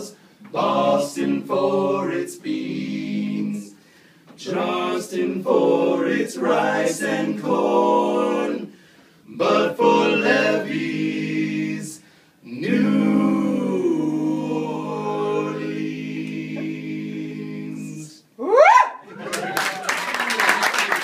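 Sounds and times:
male quartet singing a cappella: 0.0 - 18.3
rising vocal whoop: 18.4 - 20.4.

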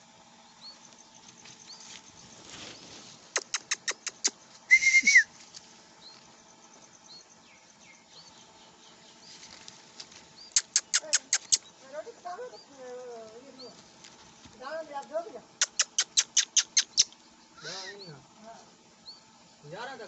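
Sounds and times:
sharp clicks: 3.4 - 4.4, 10.5 - 11.7, 15.0 - 17.2
short whistle-like note: 4.7 - 5.3.

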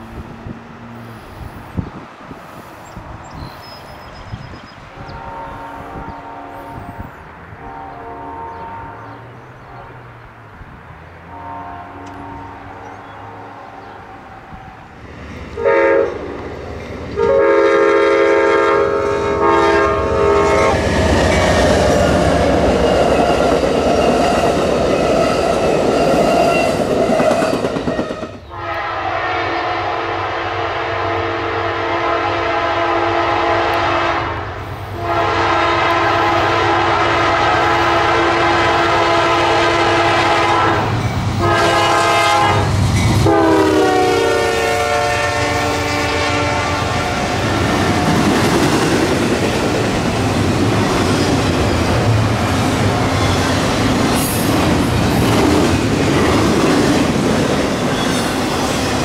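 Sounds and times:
train rushing past: 0.0 - 59.0
train horn toots: 4.9 - 10.1, 11.2 - 14.8, 15.6 - 16.4, 17.1 - 48.0
locomotive horn blasts: 5.0 - 10.1, 11.3 - 14.8, 15.6 - 16.4, 17.1 - 24.3, 28.5 - 34.4, 35.0 - 47.5.

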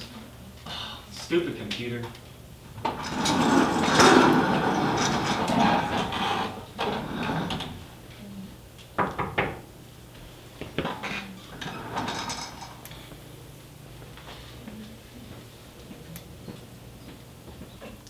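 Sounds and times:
rustling and clatter: 2.8 - 7.8
office chair shifting: 2.8 - 7.9, 10.8 - 12.8.

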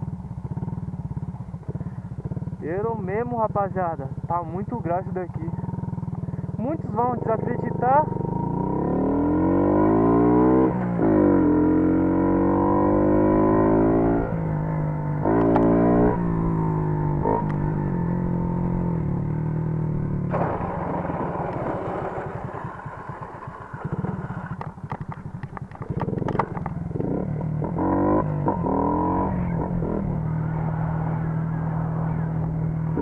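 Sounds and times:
moped engine revving: 0.0 - 33.0
sharp clicks: 24.5 - 26.8.

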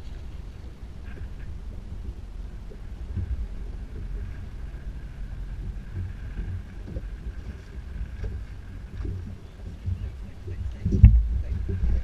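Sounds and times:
wind rumbling on microphone: 0.0 - 12.0
water slapping against boat hull: 5.5 - 12.0.

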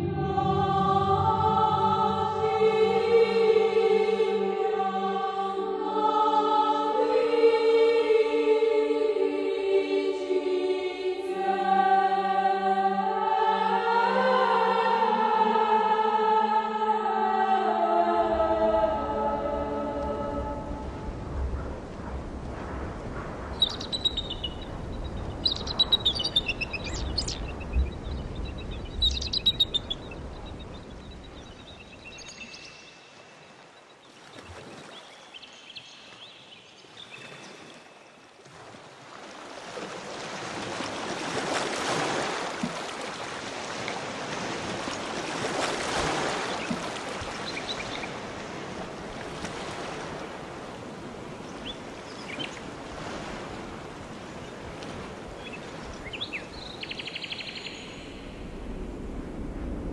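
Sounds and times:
low rumble: 0.0 - 2.6
rushing water: 0.0 - 59.9
birds chirping: 23.6 - 33.4, 46.4 - 48.2, 51.4 - 52.7.

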